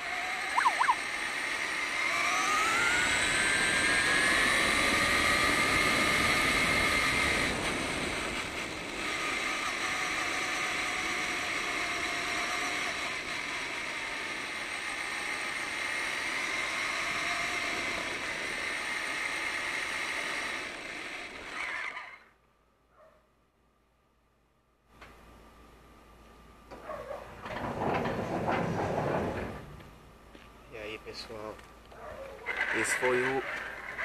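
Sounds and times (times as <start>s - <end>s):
tyres on rough dirt: 0.0s - 22.3s, 26.7s - 34.0s
toy truck drivetrain whining: 0.0s - 22.4s, 32.2s - 34.0s.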